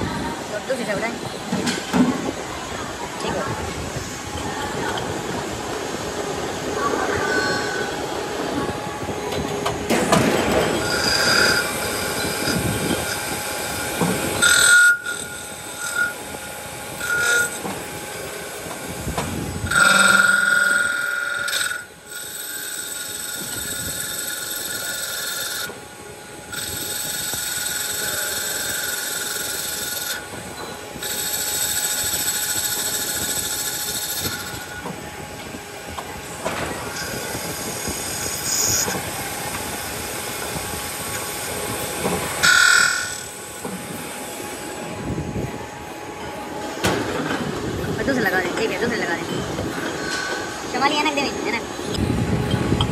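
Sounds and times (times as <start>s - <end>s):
lathe spindle running: 5.4s - 46.7s
cutting tool squealing on metal: 10.8s - 13.2s, 14.4s - 16.3s, 17.0s - 17.6s, 19.7s - 25.7s.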